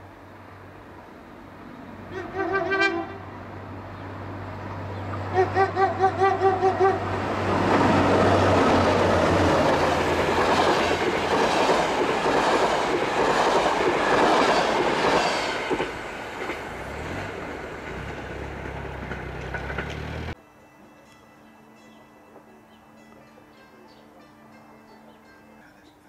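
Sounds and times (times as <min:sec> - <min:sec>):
train passing loudly: 0:00.0 - 0:20.4
train horn toots: 0:02.1 - 0:03.4, 0:05.2 - 0:07.3
wheels clacking over rail joints: 0:07.1 - 0:20.4.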